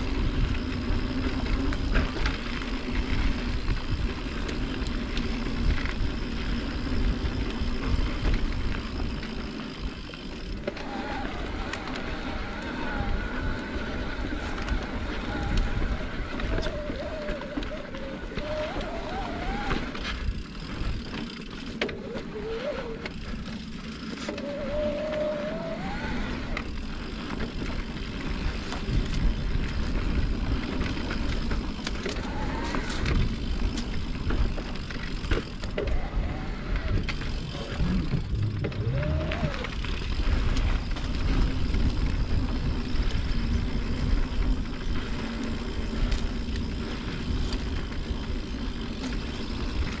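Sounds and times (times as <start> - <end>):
tyres rolling on trail: 0.0 - 50.0
wind rushing over microphone: 35.9 - 45.2.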